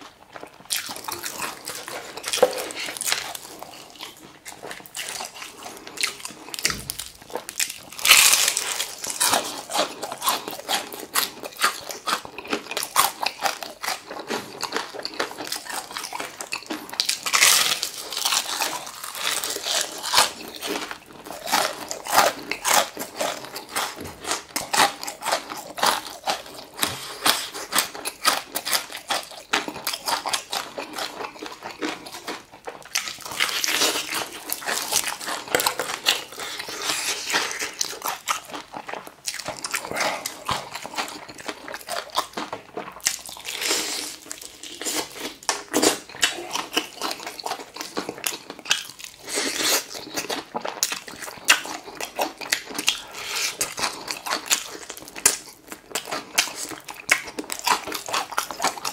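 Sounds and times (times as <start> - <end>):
crunching fried chicken: 0.0 - 58.9.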